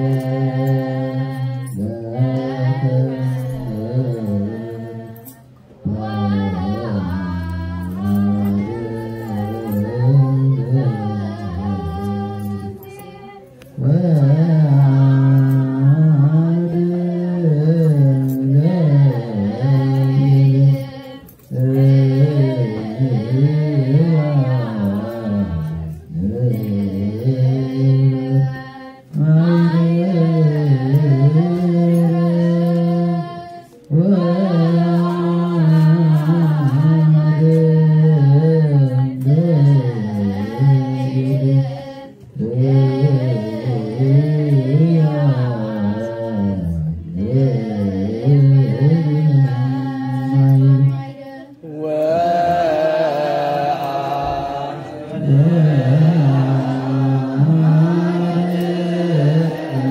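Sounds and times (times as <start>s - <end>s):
choir chanting in unison: 0.0s - 13.0s, 13.8s - 59.9s.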